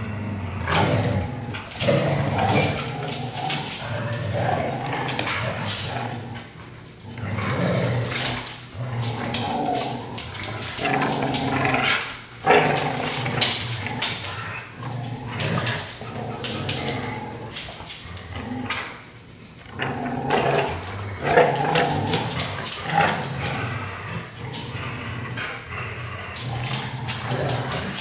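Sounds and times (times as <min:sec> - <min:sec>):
dogs growling and snarling: 0:00.0 - 0:28.0.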